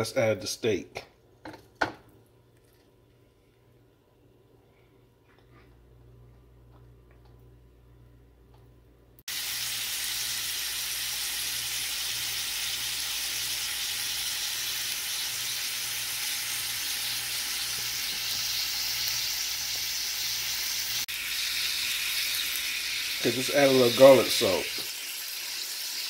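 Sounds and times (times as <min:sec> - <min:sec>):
steak sizzling in skillet: 0:09.3 - 0:26.0.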